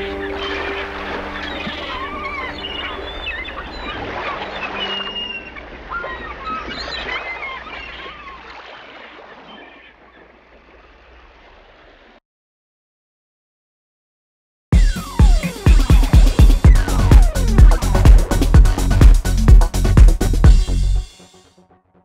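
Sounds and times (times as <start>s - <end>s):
birds chirping: 0.0s - 11.0s
steady water-like noise: 0.0s - 12.2s.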